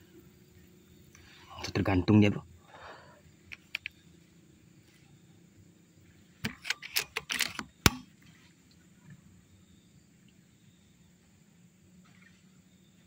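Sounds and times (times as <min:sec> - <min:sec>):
air rifle mechanical clicks: 0:03.5 - 0:04.0, 0:06.4 - 0:08.1.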